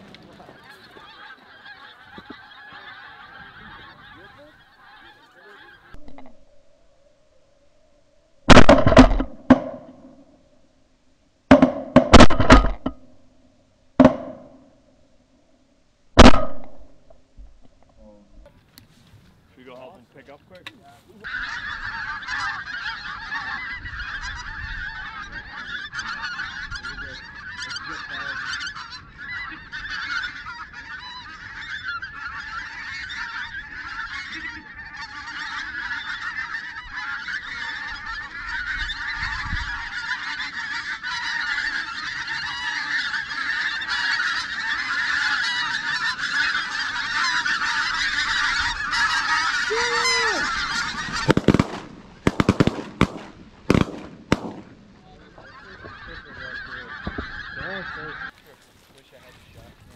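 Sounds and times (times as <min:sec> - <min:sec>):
geese honking: 0:00.0 - 0:06.3, 0:08.5 - 0:10.2, 0:11.5 - 0:13.0, 0:18.0 - 0:59.9
shotgun shots: 0:08.5 - 0:09.9, 0:11.5 - 0:12.8, 0:51.2 - 0:55.0.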